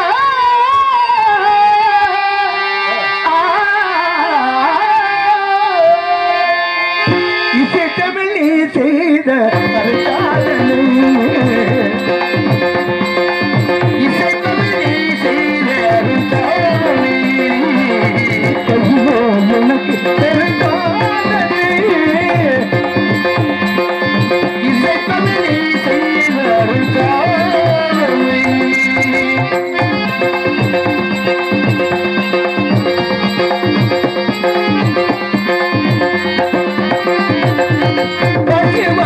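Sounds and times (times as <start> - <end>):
sliding vocal melody: 13.8 - 30.6.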